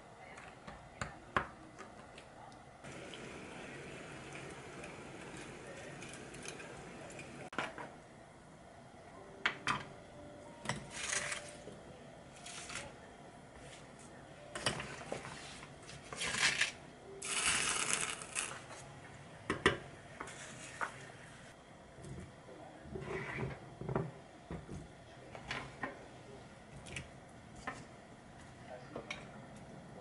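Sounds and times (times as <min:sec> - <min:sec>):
bowls and utensils clicking: 0:02.9 - 0:07.4.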